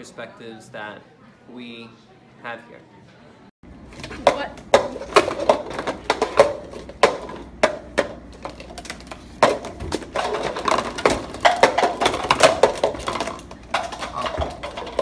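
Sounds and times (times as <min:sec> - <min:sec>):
cups clacking on a desktop: 0:04.0 - 0:15.0.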